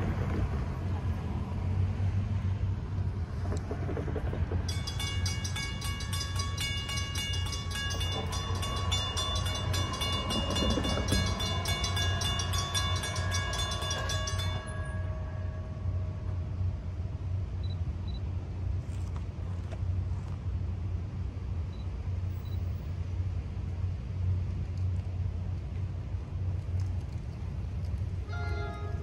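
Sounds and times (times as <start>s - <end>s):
steady low rumble: 0.0s - 29.0s
railroad crossing bell ringing: 4.7s - 17.7s, 28.2s - 29.0s.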